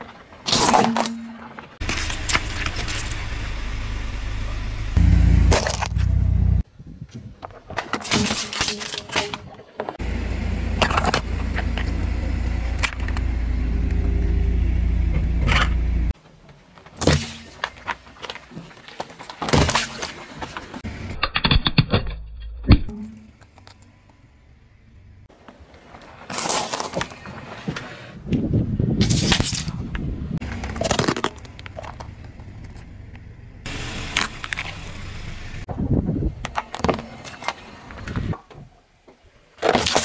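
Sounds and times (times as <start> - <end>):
car engine low rumble: 1.8 - 6.6, 10.0 - 16.2, 23.4 - 25.3, 30.2 - 35.7.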